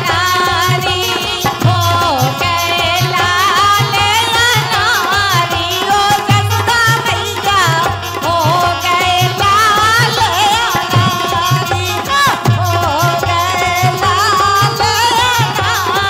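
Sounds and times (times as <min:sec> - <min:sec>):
woman singing folk song: 0:00.0 - 0:16.0
drum beat: 0:05.2 - 0:16.0.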